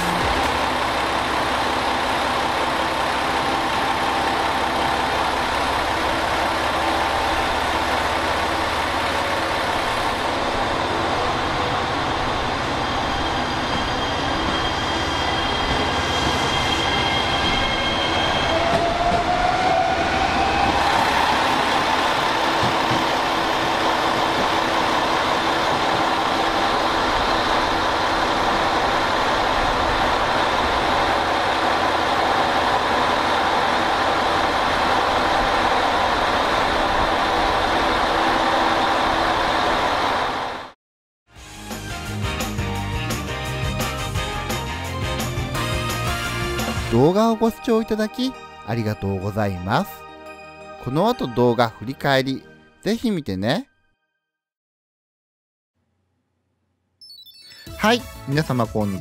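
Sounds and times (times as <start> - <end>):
electric train motor whine: 0.0 - 40.7
train rumble: 0.0 - 40.8.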